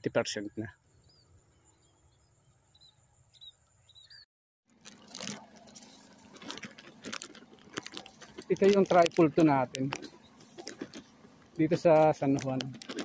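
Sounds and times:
phone handling rustling: 0:04.8 - 0:13.0.

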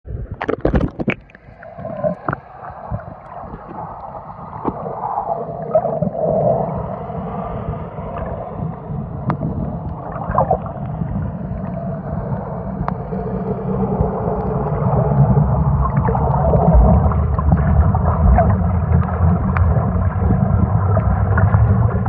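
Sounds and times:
muffled underwater rumble: 0:00.0 - 0:22.0
water splashing: 0:00.1 - 0:06.8, 0:09.3 - 0:22.0
bubbling: 0:00.1 - 0:06.9, 0:08.1 - 0:22.0.

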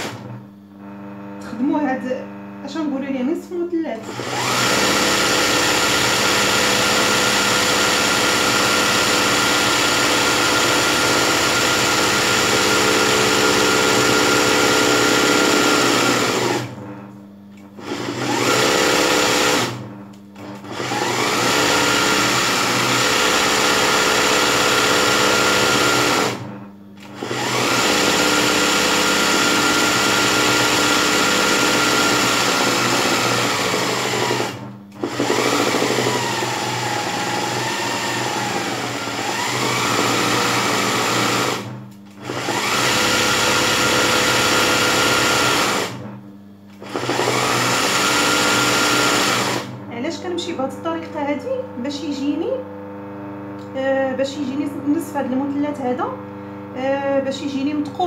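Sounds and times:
sewing machine running: 0:00.0 - 0:00.4, 0:04.0 - 0:17.0, 0:17.8 - 0:46.2, 0:46.8 - 0:49.9.

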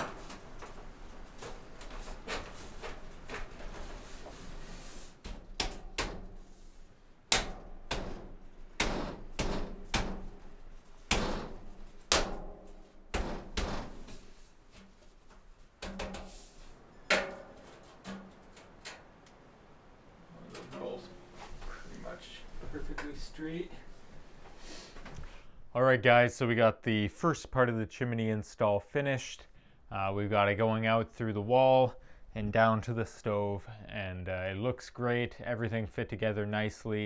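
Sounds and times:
metal stovepipe knocks and thuds: 0:11.1 - 0:14.2, 0:17.0 - 0:18.6.

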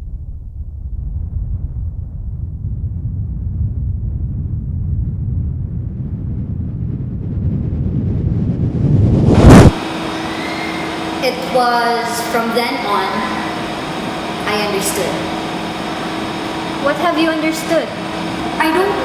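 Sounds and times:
cinematic riser rumble: 0:00.0 - 0:11.2.

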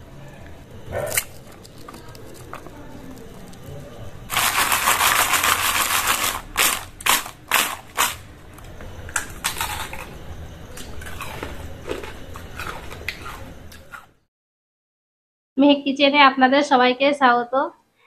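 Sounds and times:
crunchy fritters being chewed: 0:00.4 - 0:14.2.

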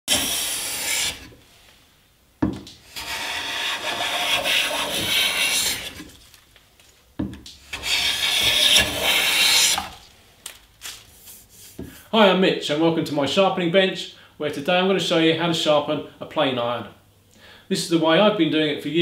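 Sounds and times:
hand plane cutting wood: 0:00.1 - 0:01.4, 0:02.8 - 0:06.2, 0:07.6 - 0:10.0.

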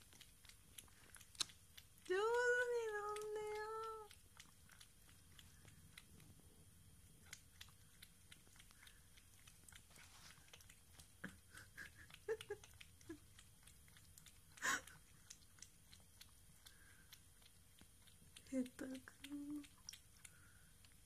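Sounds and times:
cat lapping water: 0:00.0 - 0:21.0.

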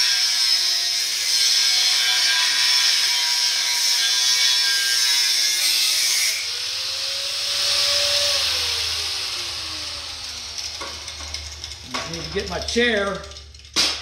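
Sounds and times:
angle grinder cutting steel: 0:00.0 - 0:14.0
grinder motor whine: 0:06.3 - 0:13.7.

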